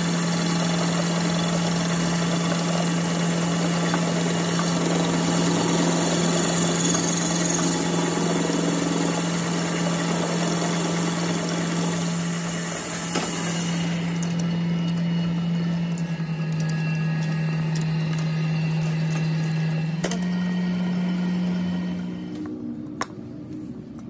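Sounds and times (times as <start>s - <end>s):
lathe motor hum: 0.0s - 22.8s
metal cutting hiss: 12.3s - 14.4s.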